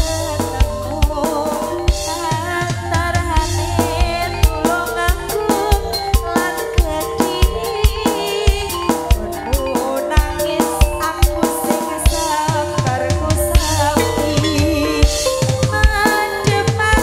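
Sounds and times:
gamelan music: 0:00.0 - 0:17.0
woman singing: 0:00.0 - 0:17.0.

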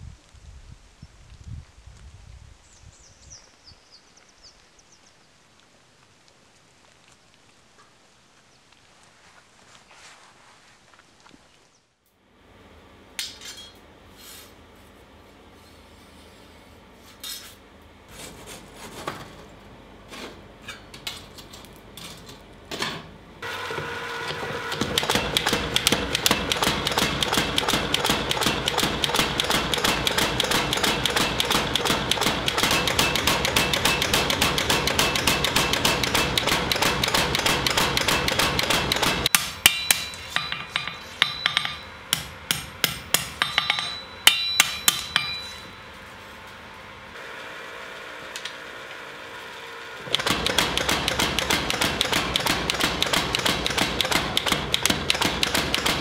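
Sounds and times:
power hammer pounding metal: 0:24.7 - 0:45.7, 0:50.1 - 0:56.0
hand hammer on anvil: 0:24.8 - 0:45.8, 0:50.1 - 0:56.0.

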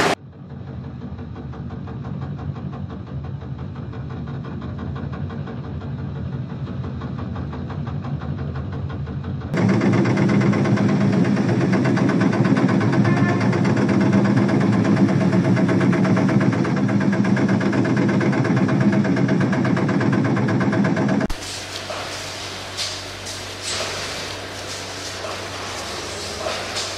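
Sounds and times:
conveyor machinery hum and rattle: 0:00.0 - 0:26.9.

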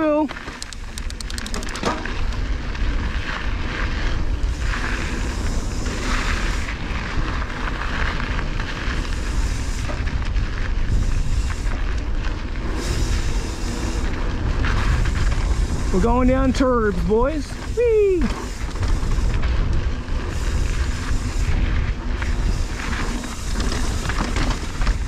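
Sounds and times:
bike tyres crunching on gravel: 0:00.0 - 0:25.0
wind buffeting microphone: 0:00.7 - 0:25.0.

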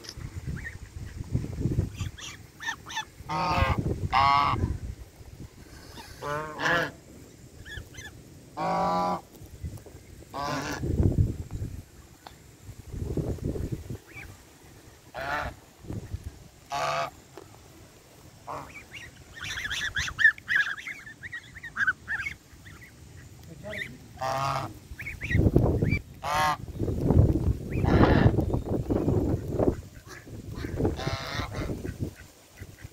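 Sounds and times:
gosling peeps: 0:00.1 - 0:04.6, 0:07.6 - 0:09.2, 0:13.7 - 0:14.4, 0:18.4 - 0:32.9
geese honking: 0:01.9 - 0:04.7, 0:05.8 - 0:07.0, 0:07.6 - 0:09.3, 0:10.3 - 0:10.9, 0:15.0 - 0:15.8, 0:16.6 - 0:17.3, 0:18.4 - 0:26.7, 0:27.6 - 0:28.5, 0:29.1 - 0:32.9.

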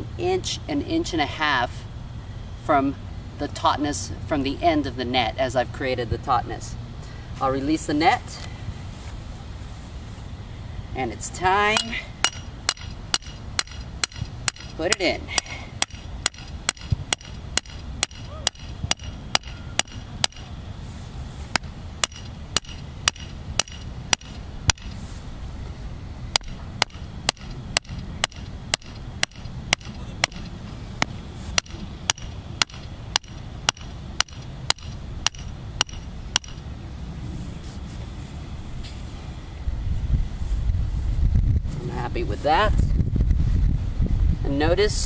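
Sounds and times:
mallet clanking on steel pole: 0:11.8 - 0:20.5, 0:21.5 - 0:25.0, 0:26.4 - 0:36.6.

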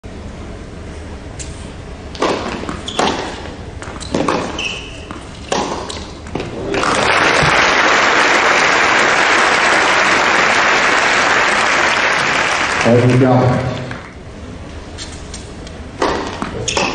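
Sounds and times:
tennis ball hit by rackets: 0:02.1 - 0:06.6, 0:16.0 - 0:16.9
crowd applauding: 0:06.6 - 0:14.2.

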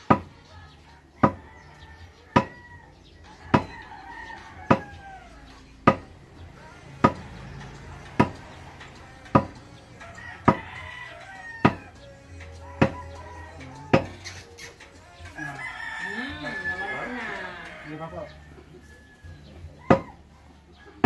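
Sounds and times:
rooster crowing: 0:01.2 - 0:06.7, 0:09.9 - 0:14.3, 0:15.0 - 0:21.0.

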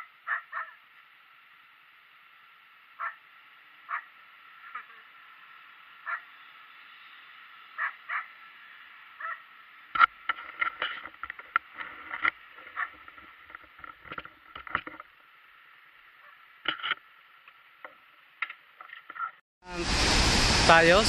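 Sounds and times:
steady thin hiss: 0:00.8 - 0:10.7.

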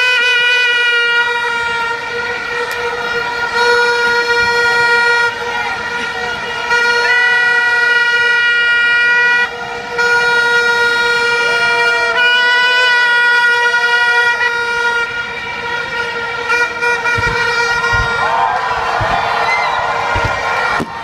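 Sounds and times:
horns sliding in pitch: 0:00.0 - 0:21.0
party horns blaring: 0:00.0 - 0:21.0
low thuds: 0:17.0 - 0:21.0.

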